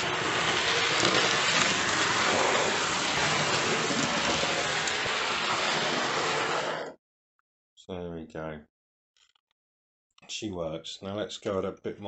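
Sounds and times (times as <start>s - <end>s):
model train motor whirring: 0.0s - 6.9s.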